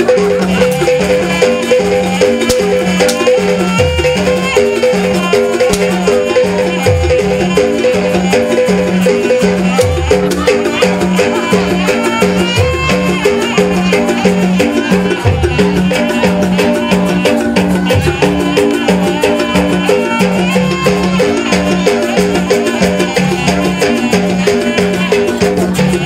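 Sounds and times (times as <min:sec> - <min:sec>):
drums: 0:00.0 - 0:26.0
pitched metallic notes: 0:00.0 - 0:26.0.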